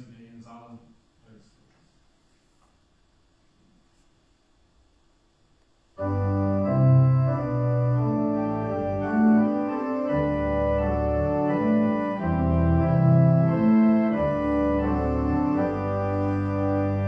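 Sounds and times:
church organ playing a hymn: 0:06.0 - 0:17.0.

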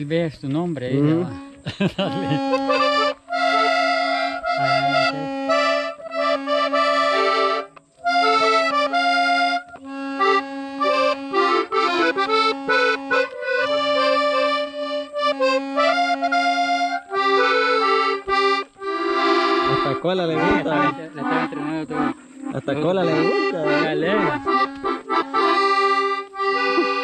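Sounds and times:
piano accordion playing a tune: 0:00.6 - 0:27.0.

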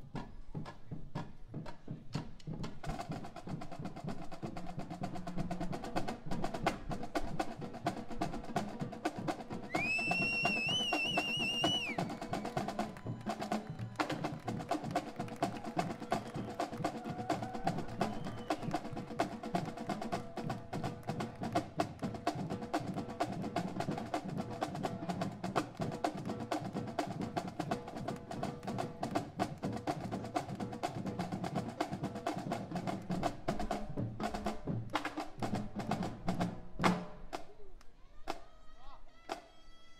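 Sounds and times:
marching drumline playing: 0:00.0 - 0:37.5
shrill whistle: 0:09.7 - 0:12.7, 0:18.0 - 0:18.8.

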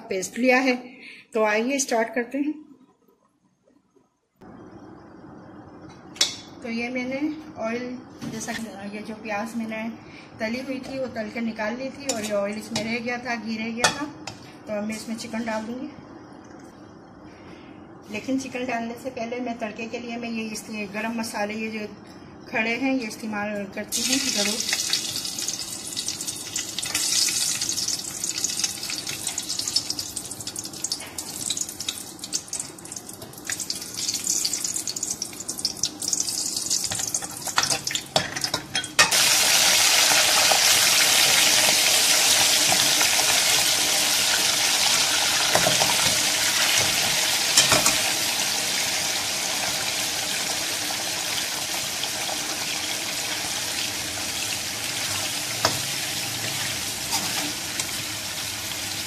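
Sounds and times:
chicken sizzling in oil: 0:23.9 - 0:38.2, 0:39.0 - 0:59.0
spices crackling in hot oil: 0:23.9 - 0:59.0.

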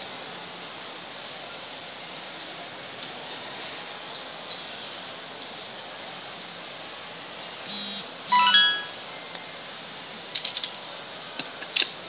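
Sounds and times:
bright chime: 0:08.3 - 0:09.0.

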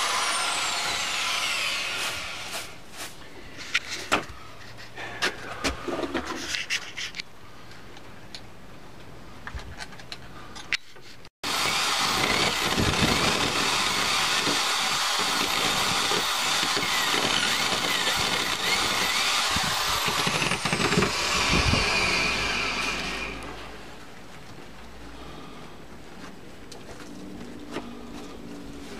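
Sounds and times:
electric drill boring into wood: 0:00.0 - 0:02.8, 0:11.4 - 0:23.6.

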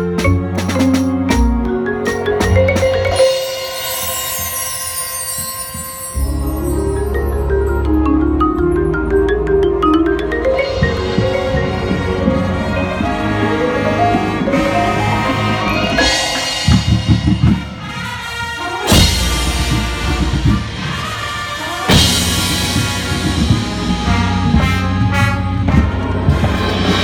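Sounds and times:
marimbas struck with mallets: 0:00.0 - 0:17.6
marching band brass and percussion: 0:00.0 - 0:27.0.

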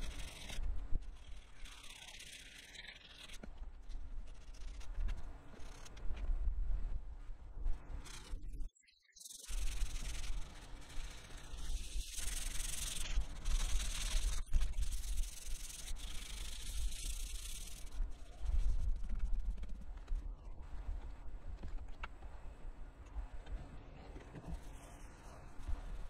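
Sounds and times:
sandpaper rubbing: 0:00.0 - 0:03.5, 0:04.3 - 0:05.0, 0:09.4 - 0:19.8.

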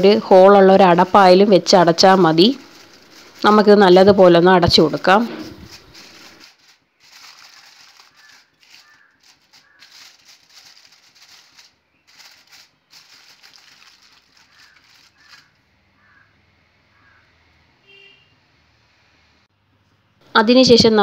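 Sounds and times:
aluminium foil crinkling: 0:01.0 - 0:15.6.

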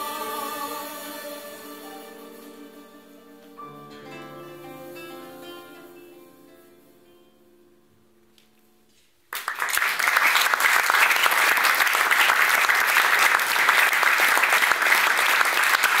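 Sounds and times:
music held notes: 0:00.0 - 0:09.2
audience applause: 0:09.3 - 0:16.0.

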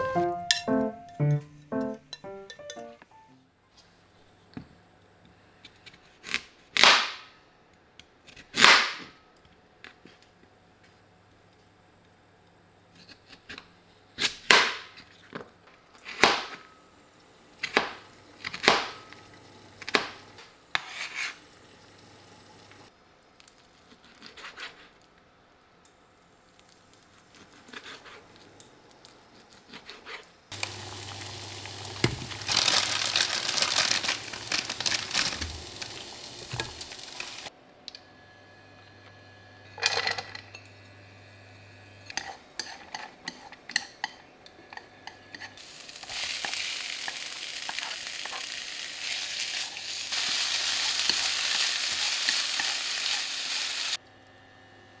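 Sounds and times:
boiling saucepan rushing noise: 0:30.5 - 0:37.5, 0:45.6 - 0:54.0.

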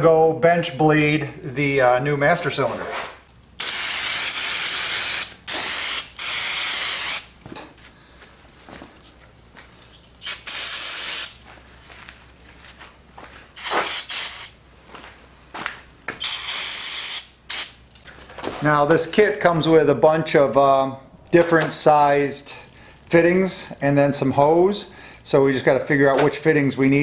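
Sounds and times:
pressurised spray hissing: 0:03.6 - 0:07.2, 0:10.2 - 0:11.4, 0:13.6 - 0:14.5, 0:16.2 - 0:17.8.

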